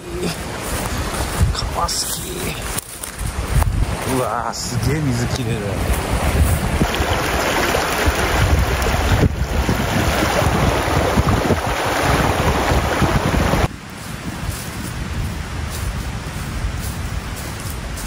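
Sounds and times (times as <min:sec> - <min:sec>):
stream rushing over rocks: 0:03.5 - 0:13.7.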